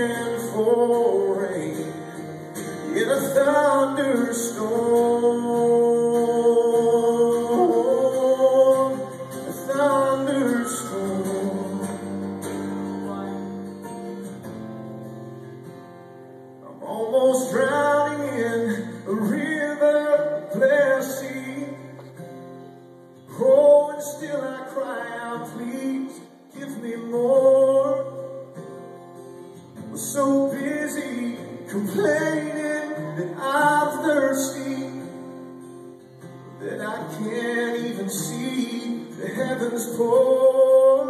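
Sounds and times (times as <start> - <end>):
man singing wordless phrases: 0.0 - 2.2, 2.8 - 12.0, 16.6 - 22.1, 23.3 - 28.4, 30.0 - 35.1, 36.6 - 41.0
acoustic guitar strumming: 0.0 - 41.0.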